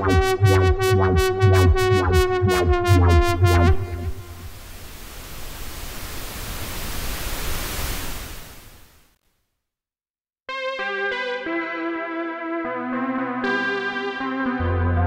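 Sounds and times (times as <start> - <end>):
pulsing synthesizer sequence with bass: 0.0 - 4.7
sustained synth chord: 2.9 - 5.7
rushing synth noise sweep: 3.4 - 9.0.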